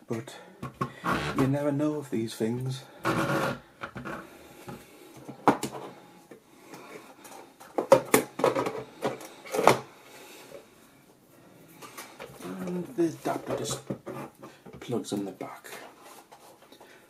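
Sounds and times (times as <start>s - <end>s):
plastic knocks and clicks: 0.6s - 1.0s.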